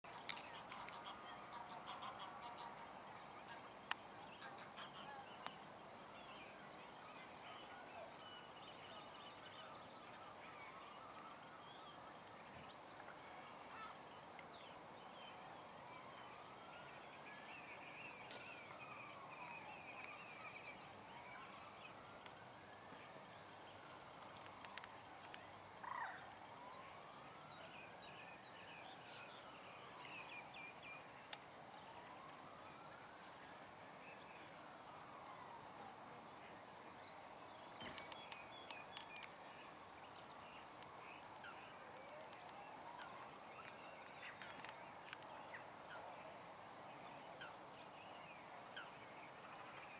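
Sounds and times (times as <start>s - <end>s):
distant siren wailing: 6.6s - 49.9s
small birds chirping: 37.5s - 46.0s.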